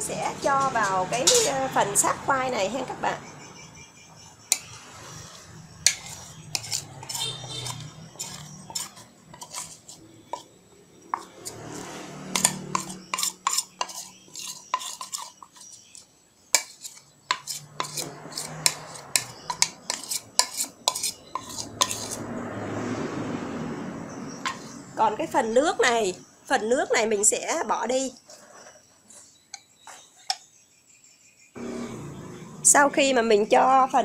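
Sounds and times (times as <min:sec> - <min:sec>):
ceramic bowls clinking and scraping: 0:00.5 - 0:01.7, 0:04.3 - 0:22.3, 0:24.4 - 0:24.9, 0:27.8 - 0:30.5.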